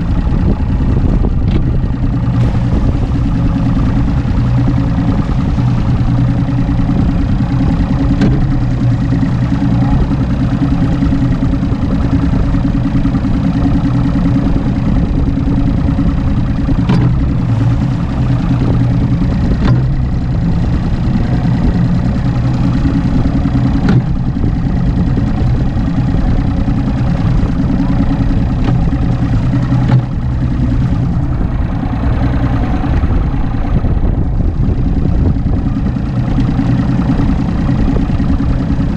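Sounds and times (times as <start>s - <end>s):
outboard engine idling: 0.0s - 38.9s.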